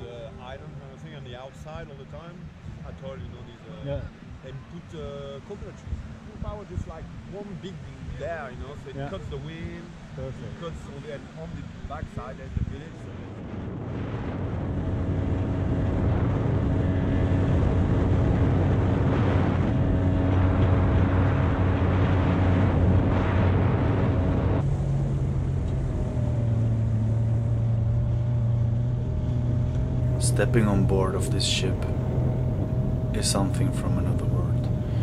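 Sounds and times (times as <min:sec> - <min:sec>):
water rushing along hull: 0:00.0 - 0:35.0
wind on microphone: 0:09.0 - 0:35.0
boat motor running: 0:13.1 - 0:35.0.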